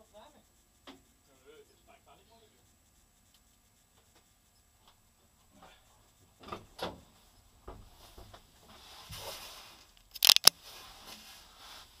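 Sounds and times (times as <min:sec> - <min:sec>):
sharp clicks: 0:10.1 - 0:10.5.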